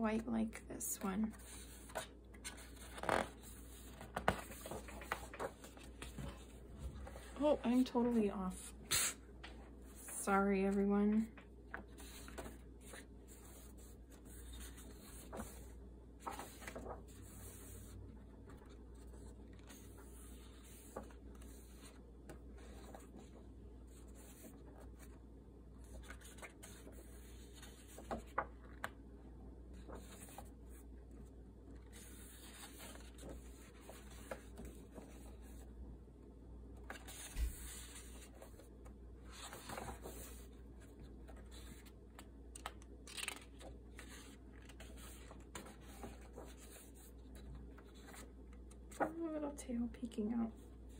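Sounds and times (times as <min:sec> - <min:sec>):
paper pages rustling: 0:01.3 - 0:10.2, 0:11.2 - 0:25.2, 0:25.8 - 0:29.0, 0:29.8 - 0:35.7, 0:36.8 - 0:49.2.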